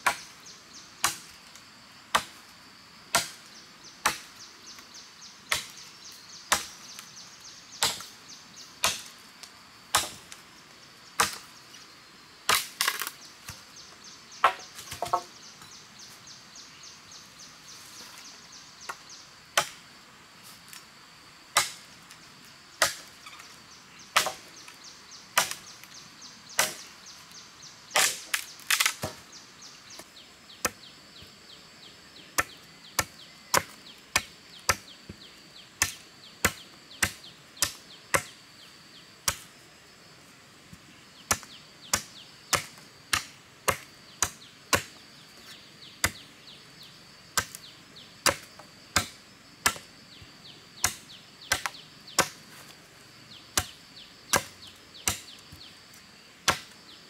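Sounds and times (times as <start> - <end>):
machete chopping bamboo: 0.0 - 0.3, 1.0 - 1.4, 2.1 - 2.4, 3.1 - 4.4, 5.5 - 5.8, 6.5 - 7.0, 7.8 - 8.2, 8.8 - 9.2, 9.9 - 10.4, 11.2 - 11.5, 12.5 - 13.6, 14.4 - 15.3, 19.6 - 19.8, 21.5 - 21.9, 22.8 - 23.1, 24.1 - 24.5, 25.3 - 25.7, 26.6 - 26.9, 27.9 - 29.2, 30.0 - 30.8, 32.4 - 38.4, 39.2 - 39.5, 41.3 - 45.0, 46.0 - 46.3, 47.4 - 49.9, 50.8 - 52.5, 53.5 - 55.7, 56.4 - 56.8.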